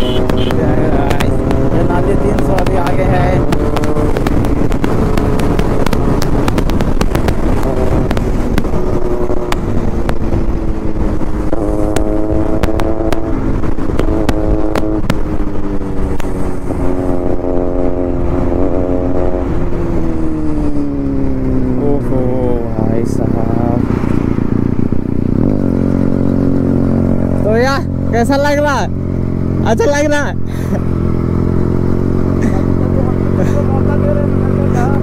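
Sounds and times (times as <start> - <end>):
wind noise on microphone: 0.0 - 21.7
motorcycle engine at speed: 0.0 - 35.0.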